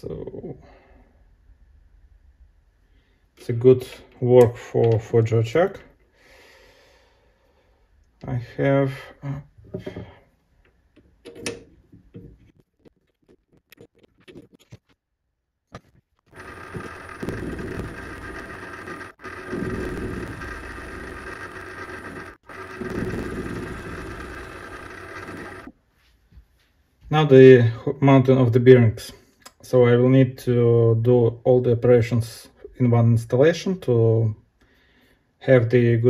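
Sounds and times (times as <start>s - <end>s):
metal lathe whining: 16.4s - 25.7s.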